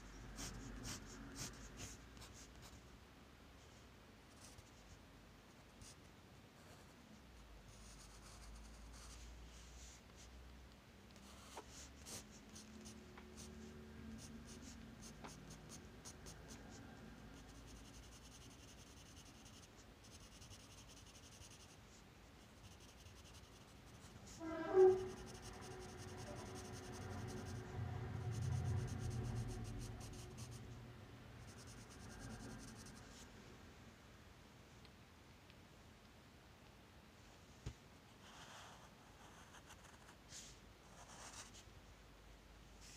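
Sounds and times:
pencil scratching on paper: 0.4 - 2.8, 7.8 - 9.2, 11.2 - 13.6, 14.2 - 16.6, 17.4 - 21.8, 22.6 - 27.6, 28.4 - 30.7, 31.4 - 33.2, 40.9 - 41.6
steady low hum: 11.2 - 35.3.

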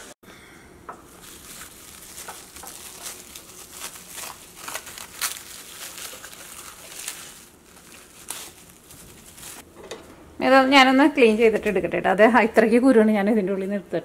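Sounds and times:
cling film crinkling: 1.1 - 9.7.

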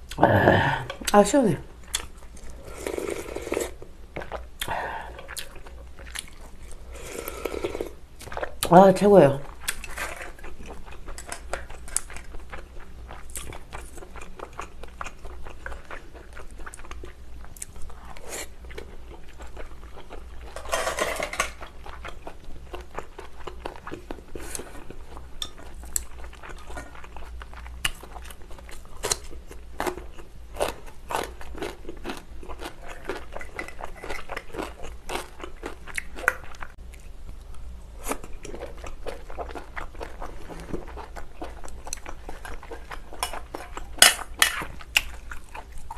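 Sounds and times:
chewing seafood: 1.8 - 8.7, 9.4 - 45.9.

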